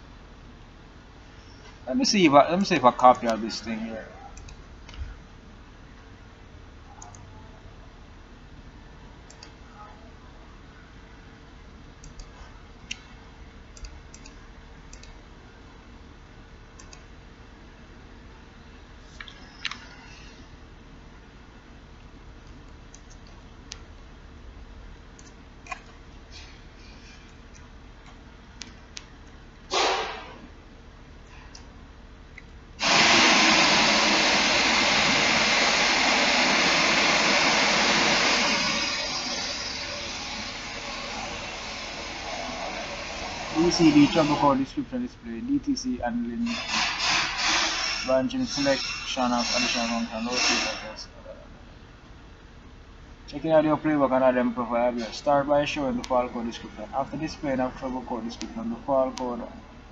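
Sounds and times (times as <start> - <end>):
computer mouse clicking: 9.3 - 9.6, 12.0 - 13.0, 13.8 - 15.2, 16.8 - 17.1, 22.4 - 23.8, 25.2 - 25.9
loud rushing hiss: 29.7 - 30.4, 32.8 - 45.0, 46.4 - 51.0.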